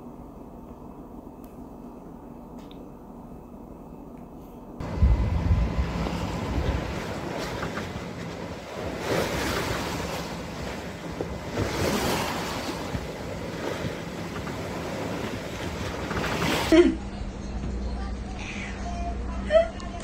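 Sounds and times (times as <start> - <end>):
wind buffeting the microphone: 4.8 - 16.0
water rushing along a boat hull: 4.8 - 16.8.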